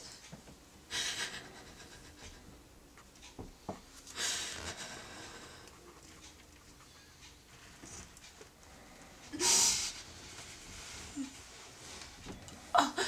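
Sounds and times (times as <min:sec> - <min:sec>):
woman sobbing: 0:12.7 - 0:13.0.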